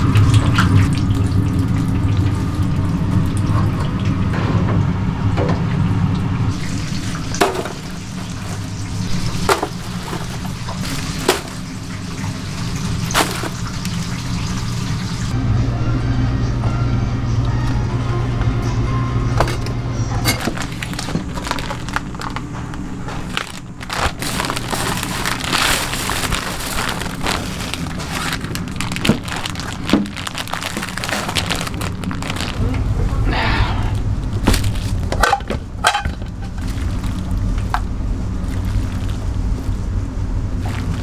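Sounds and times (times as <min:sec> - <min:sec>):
steady low hum: 0:00.0 - 0:41.0
crinkling: 0:07.4 - 0:14.2, 0:20.3 - 0:33.2, 0:33.9 - 0:39.9, 0:40.6 - 0:41.0.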